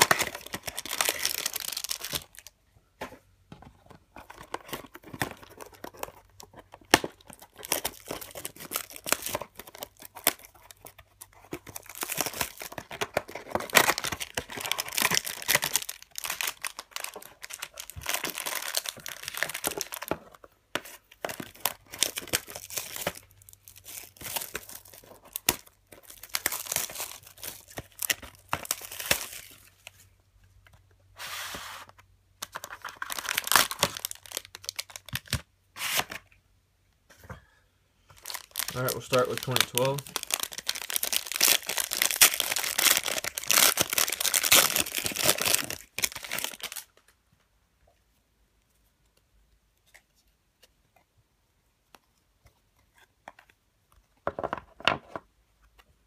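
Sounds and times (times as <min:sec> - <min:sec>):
foil wrappers rustling and tearing: 0:00.0 - 0:02.5, 0:04.9 - 0:20.2, 0:32.5 - 0:36.1, 0:38.2 - 0:47.0.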